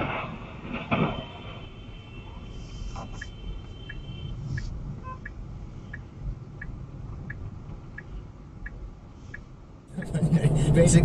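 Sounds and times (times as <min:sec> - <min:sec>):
car engine and road rumble: 0:00.0 - 0:11.0
turn signal ticking: 0:03.0 - 0:11.0.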